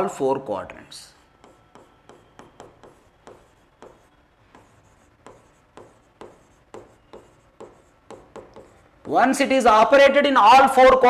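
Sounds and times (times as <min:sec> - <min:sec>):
pen tapping and scratching on board: 0:01.4 - 0:09.2.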